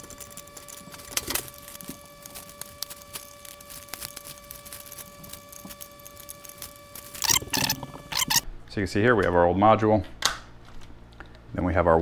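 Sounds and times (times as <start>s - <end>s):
wrench turning a nut: 7.2s - 8.4s.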